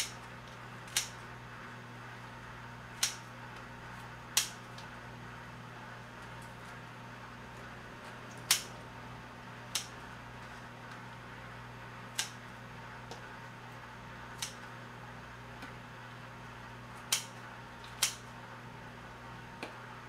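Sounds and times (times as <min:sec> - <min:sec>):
scissors snipping: 0:00.9 - 0:01.2, 0:03.0 - 0:03.3, 0:04.4 - 0:04.9, 0:08.3 - 0:08.7, 0:09.7 - 0:10.0, 0:12.1 - 0:12.4, 0:14.4 - 0:14.7, 0:17.0 - 0:18.3.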